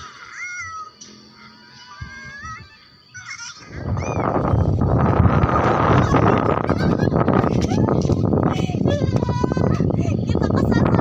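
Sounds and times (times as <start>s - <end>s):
strong wind buffeting microphone: 3.6s - 11.0s.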